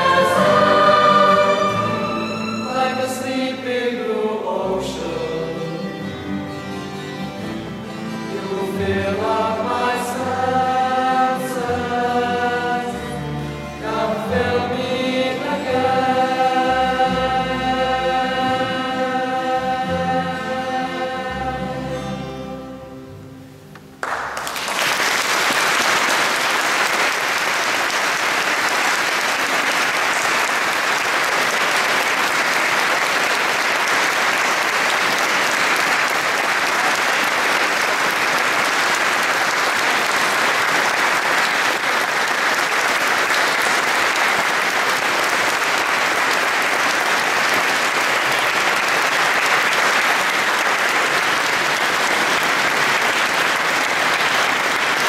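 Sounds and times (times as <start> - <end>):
audience applauding: 0.0 - 2.7, 24.0 - 55.0
choir singing: 0.0 - 6.0, 8.2 - 22.8.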